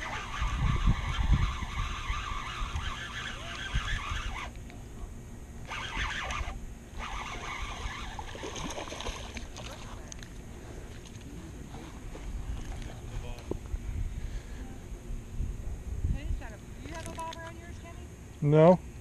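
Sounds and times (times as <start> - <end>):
wind on microphone: 0.0 - 4.5, 12.0 - 17.8
fishing reel cranking: 0.0 - 4.6, 5.6 - 8.7.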